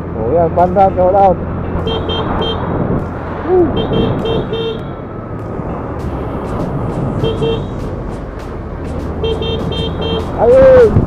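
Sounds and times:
motorcycle engine hum: 0:00.0 - 0:11.0
wind and road rumble: 0:00.0 - 0:11.0
horn toots: 0:01.8 - 0:02.8, 0:03.5 - 0:05.0, 0:07.1 - 0:07.9, 0:09.1 - 0:10.6.

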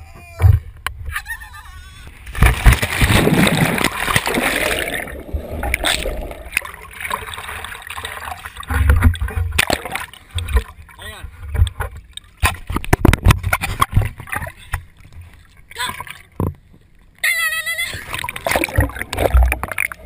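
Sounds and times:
loud splash into water: 0:02.3 - 0:07.5
splashing at water surface: 0:02.3 - 0:08.4
underwater bubbling rush: 0:02.4 - 0:10.2, 0:18.2 - 0:20.0.

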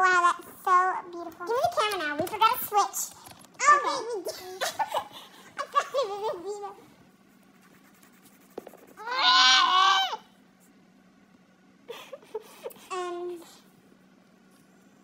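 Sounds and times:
wavering cry-like wail: 0:09.0 - 0:10.3.

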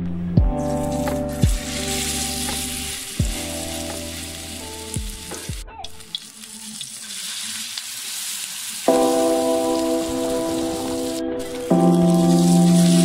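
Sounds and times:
background music: 0:00.0 - 0:06.2, 0:08.9 - 0:13.0
hot oil sizzling: 0:00.6 - 0:13.0.

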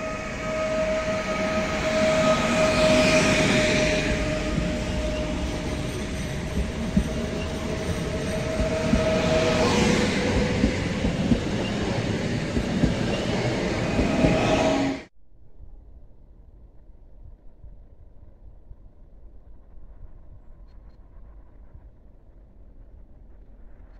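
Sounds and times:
train running past: 0:00.0 - 0:15.1.

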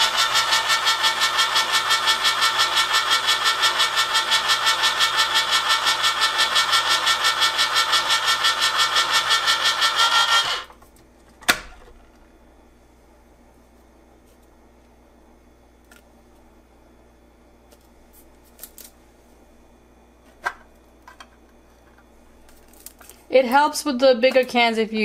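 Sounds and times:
electric can opener whirring: 0:00.0 - 0:10.8, 0:11.4 - 0:12.4.

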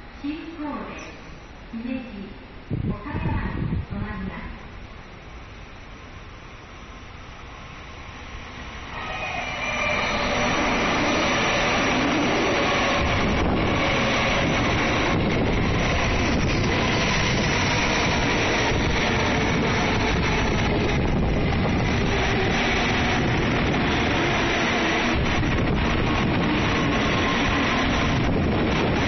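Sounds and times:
faint whine: 0:00.0 - 0:22.2
train wheels and air rushing: 0:07.7 - 0:29.0.

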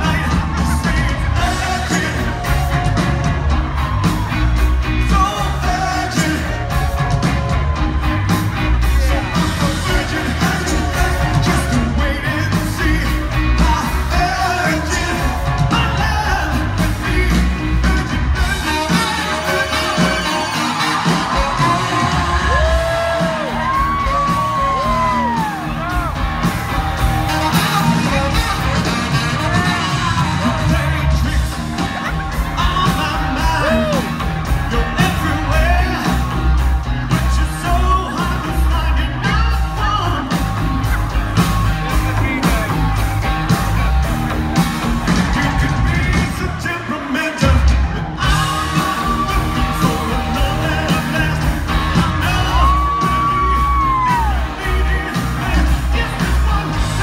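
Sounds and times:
lead singer singing: 0:00.0 - 0:44.0, 0:44.6 - 0:57.0
crowd yelling and whooping: 0:00.0 - 0:57.0
live rock band playing: 0:00.0 - 0:57.0
saxophone: 0:13.2 - 0:36.1.

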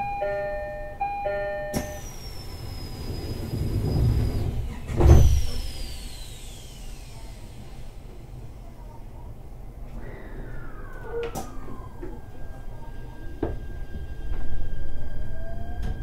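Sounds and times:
two-tone train door chime: 0:00.0 - 0:04.6
sliding doors rushing: 0:01.8 - 0:05.9
high falling tone: 0:09.9 - 0:16.0.

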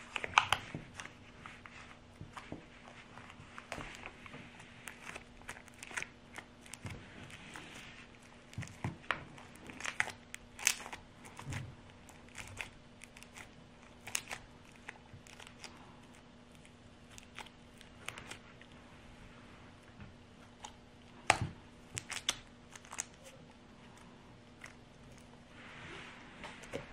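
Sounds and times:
slime clicking and squelching: 0:04.8 - 0:18.4, 0:20.5 - 0:25.3.

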